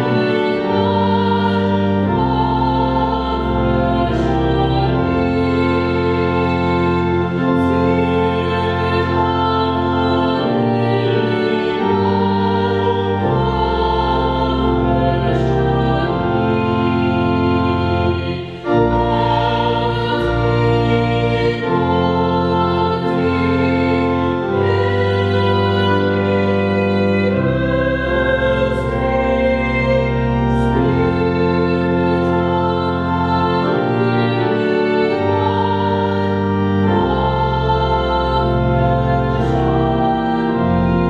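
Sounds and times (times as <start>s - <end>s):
organ playing slow chords: 0.0s - 41.0s.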